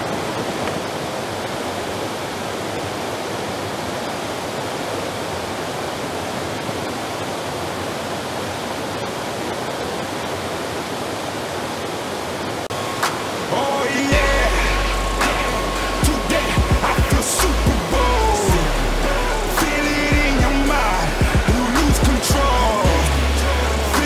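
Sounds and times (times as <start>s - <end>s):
creek water cascading: 0.0s - 24.0s.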